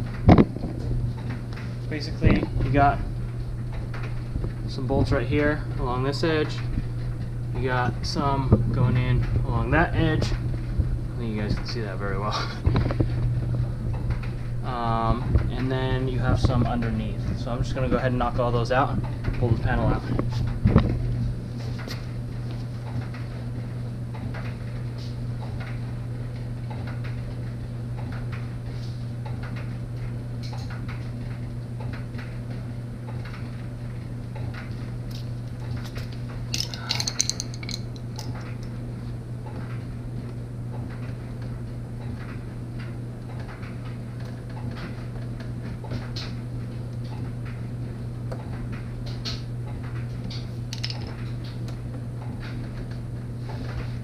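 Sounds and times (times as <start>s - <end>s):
steady low hum: 0.0s - 54.0s
hand tools clinking on metal: 36.5s - 38.6s.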